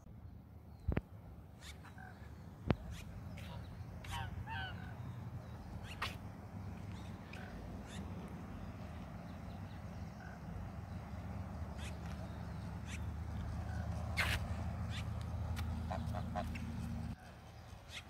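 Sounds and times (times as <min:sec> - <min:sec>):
geese honking: 0:02.9 - 0:05.0, 0:15.7 - 0:17.2.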